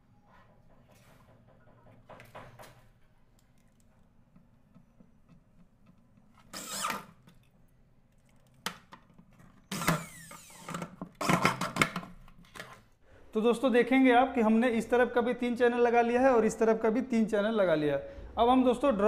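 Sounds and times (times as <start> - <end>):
electric drill motor: 6.5 - 7.1, 9.7 - 11.5.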